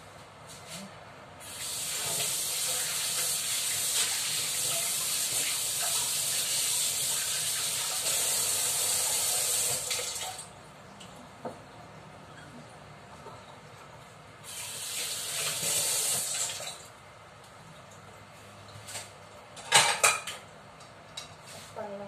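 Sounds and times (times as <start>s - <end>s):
kitchen tap running: 1.4s - 10.5s, 14.4s - 16.9s.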